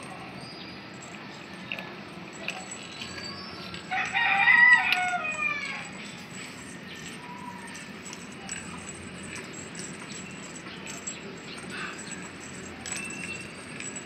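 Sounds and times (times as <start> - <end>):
rooster crowing: 3.9 - 6.0.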